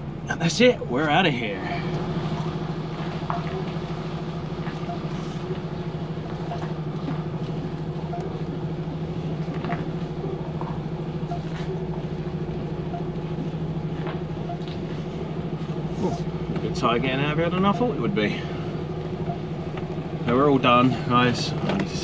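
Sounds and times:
truck diesel engine running: 0.0s - 22.0s.

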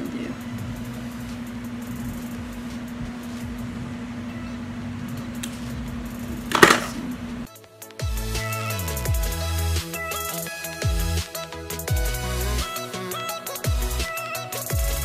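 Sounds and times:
steady low hum: 0.0s - 7.5s.

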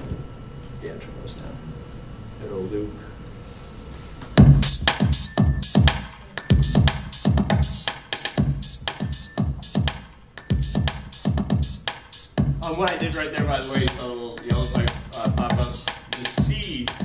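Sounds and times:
electronic drum beat: 4.4s - 17.0s
short synth tones: 13.2s - 15.9s.

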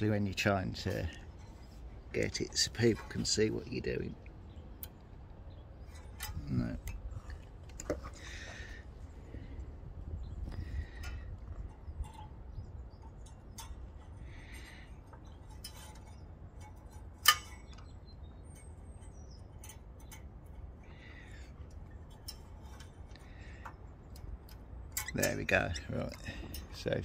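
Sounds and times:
small metal clicks of pliers: 15.1s - 17.9s, 21.7s - 27.0s.

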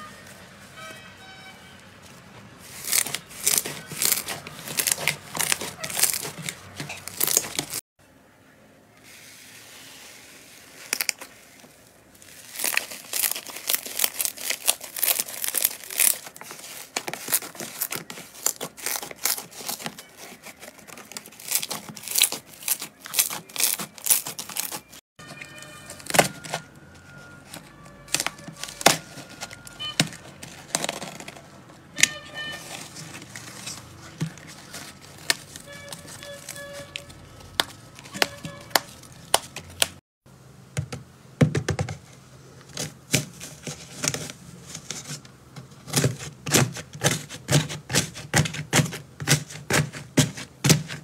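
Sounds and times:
slime squishing and crackling: 2.6s - 7.8s, 10.6s - 11.6s, 12.2s - 25.0s.

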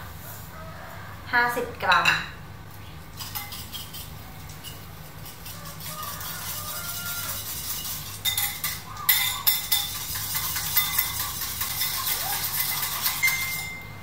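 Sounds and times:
whisk clicking against bowl: 3.2s - 13.7s.

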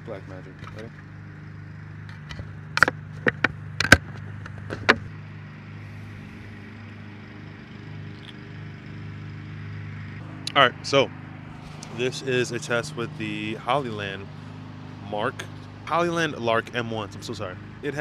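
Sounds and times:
lawn mower engine droning: 0.0s - 18.0s
sharp clicks and knocks: 2.0s - 5.1s.

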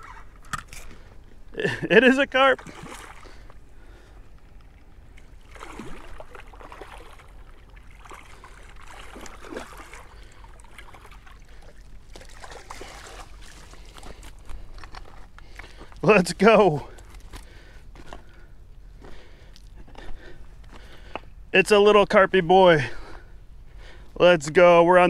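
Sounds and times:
water sloshing: 2.4s - 18.3s
fish thrashing and splashing: 2.6s - 3.6s, 4.6s - 16.0s.

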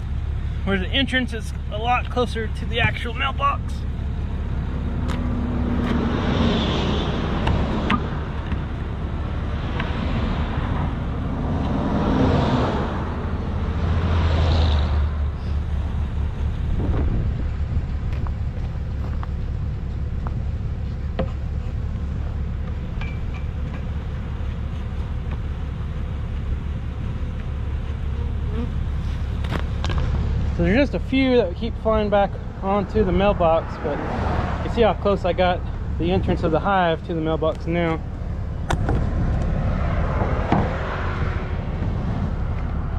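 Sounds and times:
cars passing on highway: 0.0s - 42.9s
steady low traffic rumble: 0.0s - 42.9s
bees buzzing: 27.2s - 29.4s.

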